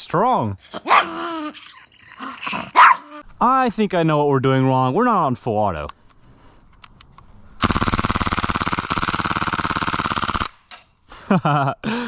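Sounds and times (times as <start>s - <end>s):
gun clicks: 5.9s - 7.3s
airsoft gun full-auto burst: 7.6s - 10.7s.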